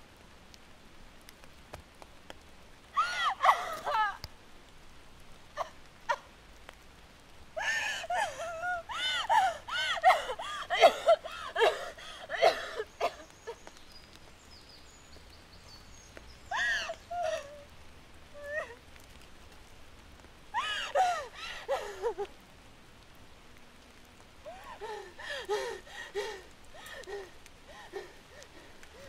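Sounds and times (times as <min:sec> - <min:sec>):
young woman sobbing: 0:03.0 - 0:04.2, 0:07.6 - 0:13.6, 0:16.5 - 0:17.7, 0:18.3 - 0:18.8, 0:20.6 - 0:22.4, 0:24.4 - 0:29.0.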